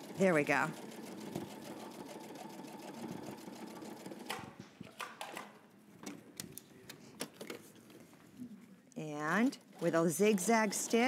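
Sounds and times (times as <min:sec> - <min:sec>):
sewing machine stitching: 0:00.0 - 0:04.4, 0:09.5 - 0:11.0.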